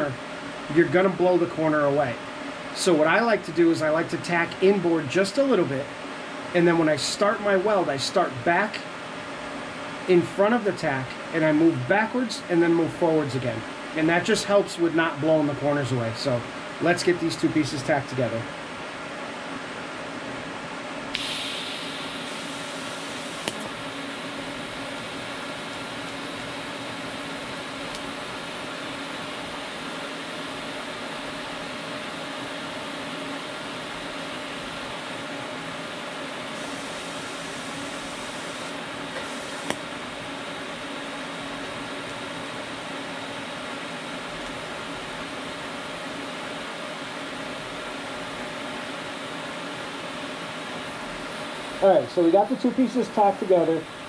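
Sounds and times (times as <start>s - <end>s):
welding arc hissing: 21.1s - 23.8s, 36.5s - 39.9s.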